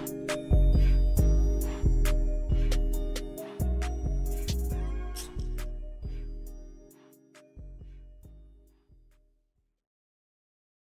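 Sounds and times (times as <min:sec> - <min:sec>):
trap beat: 0:00.0 - 0:08.4
low bass: 0:00.5 - 0:06.7.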